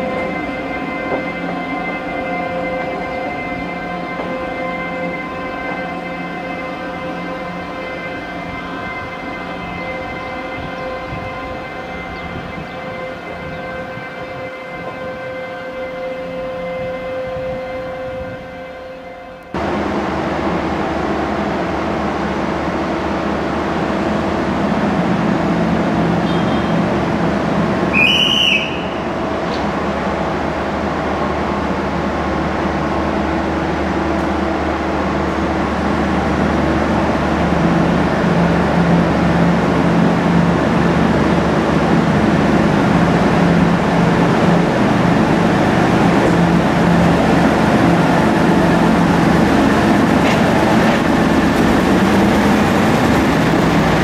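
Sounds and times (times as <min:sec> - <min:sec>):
diesel train engine hum: 0:00.0 - 0:54.0.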